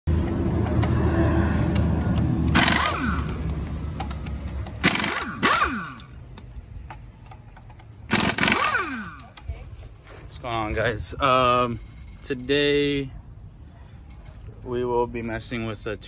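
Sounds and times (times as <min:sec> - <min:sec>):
impact wrench running: 0:01.7 - 0:06.2, 0:08.1 - 0:09.3.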